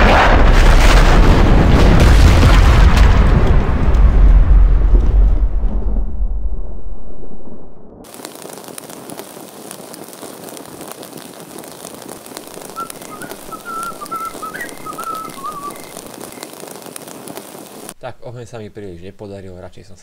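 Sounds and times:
crackling hiss: 8.0s - 20.0s
person whistling a tune: 12.8s - 15.9s.

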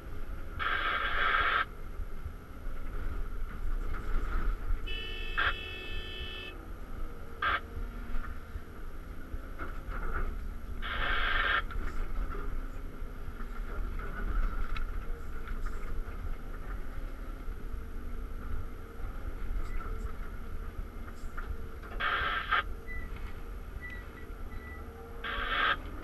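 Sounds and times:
diesel engine running: 0.0s - 26.0s
hydraulic whine: 21.9s - 23.2s, 23.8s - 26.0s.

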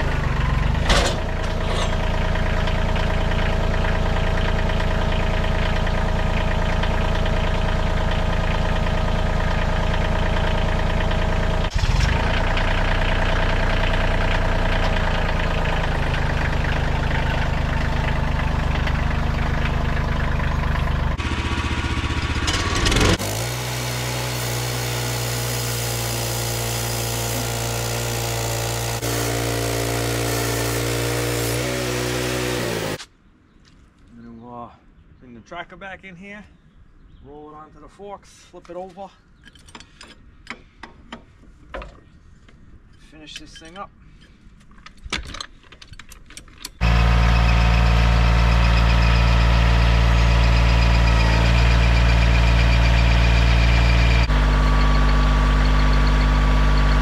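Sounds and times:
tractor engine running: 0.0s - 33.0s, 46.6s - 57.0s.

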